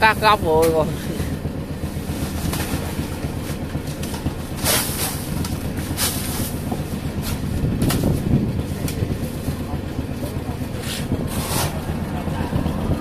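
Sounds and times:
boat engine humming: 0.0 - 13.0
crushed ice rustling and scraping: 4.5 - 8.3.

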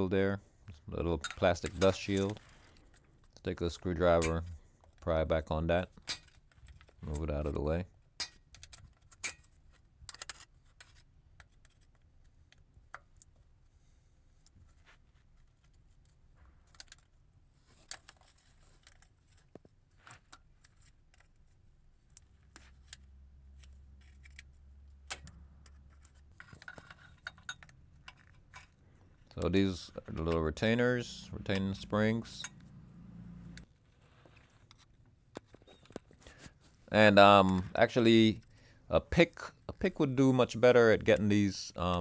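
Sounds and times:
screwdriver clicking and scraping: 22.1 - 29.6.

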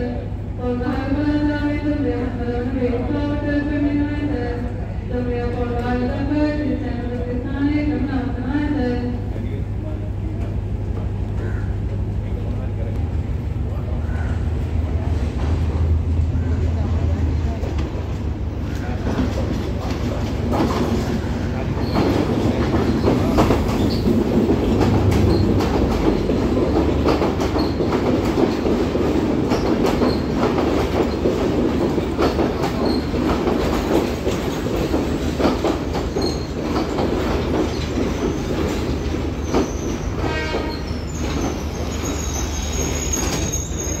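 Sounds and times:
train low rumble: 0.0 - 44.0
wheels clicking over rail joints: 19.0 - 43.9
high thin brake squeal: 39.5 - 44.0.

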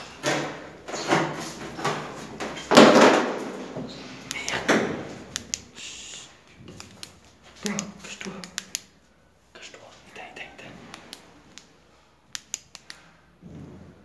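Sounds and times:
sharp clicks: 5.3 - 8.9, 12.3 - 13.0
knocks and scrapes: 13.4 - 14.0.

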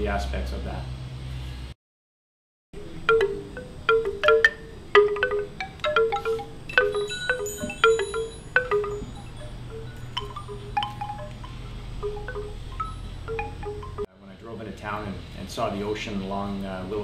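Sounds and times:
wind chimes ringing: 3.0 - 14.1.

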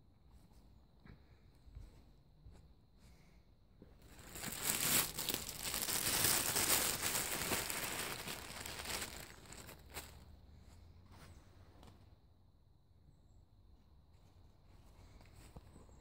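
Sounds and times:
dry leaves rustling and crackling: 4.1 - 10.2.

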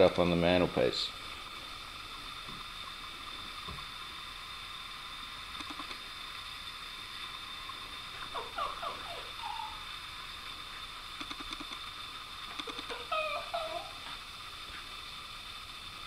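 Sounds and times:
faint steady hiss: 0.0 - 16.0
small dog whimpering: 8.4 - 9.8, 12.6 - 14.1.

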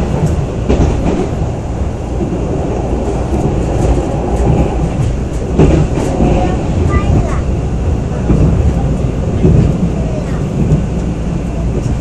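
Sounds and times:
track knocks: 0.0 - 12.0
train wheels rumbling on rails: 0.0 - 12.0.

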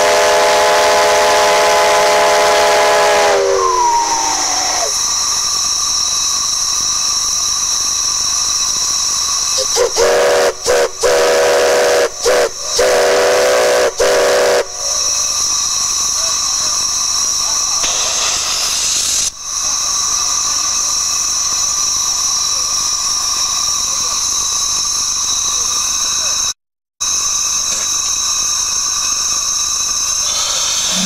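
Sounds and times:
deep chime steam whistle blasts: 0.0 - 5.8, 9.5 - 16.2, 30.0 - 31.0
rush of escaping steam: 0.0 - 25.1, 27.1 - 31.0
high whistling and hissing steam: 0.0 - 31.0.

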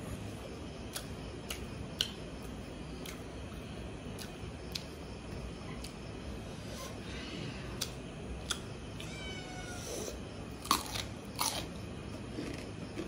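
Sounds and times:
chewing: 12.3 - 13.0.

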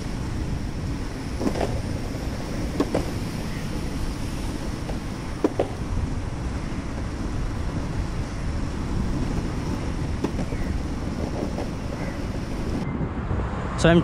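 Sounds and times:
wind buffeting microphone: 0.0 - 14.0
short knocks: 4.8 - 5.8.

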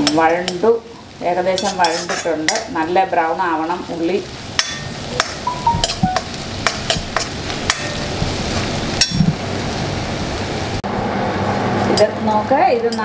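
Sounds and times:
food sizzling in oil: 0.0 - 13.0
metal spoon scraping pan: 1.5 - 2.7.

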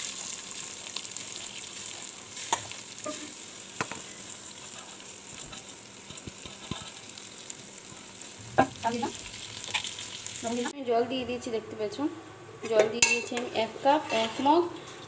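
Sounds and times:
rice frying in hot oil: 0.0 - 10.7.

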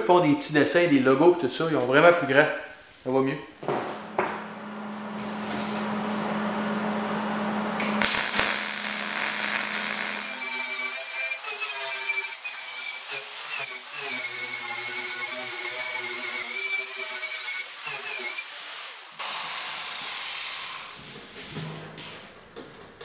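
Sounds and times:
angle grinder wire wheel on steel: 7.8 - 19.1.

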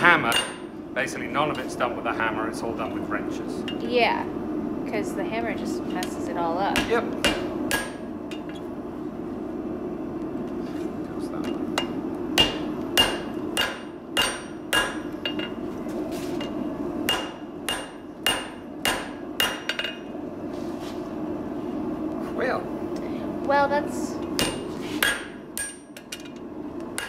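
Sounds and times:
hammer striking iron on anvil: 0.2 - 0.7, 6.0 - 8.6, 11.4 - 15.6, 16.4 - 20.1, 24.4 - 26.4.

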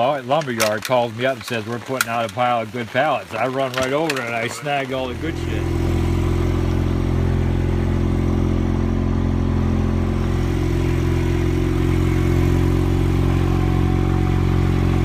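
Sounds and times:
small engine humming: 3.7 - 15.0.

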